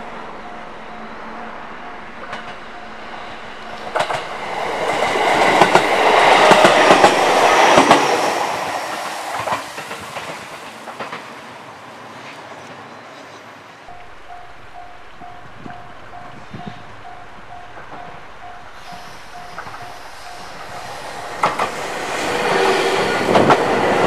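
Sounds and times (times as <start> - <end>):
wheels clacking over rail joints: 0.0 - 11.6, 13.9 - 24.0
electric train passing: 0.0 - 24.0.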